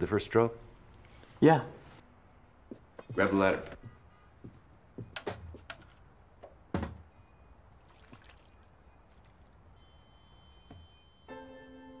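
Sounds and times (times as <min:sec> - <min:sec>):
light handling knocks and clicks: 0:02.7 - 0:07.1.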